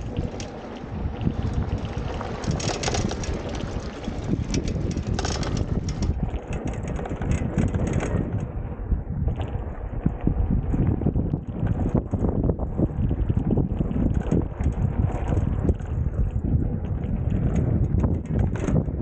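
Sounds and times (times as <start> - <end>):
tyres rumbling on dirt track: 0.0 - 8.5
wind buffeting microphone: 0.0 - 19.0
scooter knocks and rattles: 2.2 - 8.4, 17.5 - 19.0.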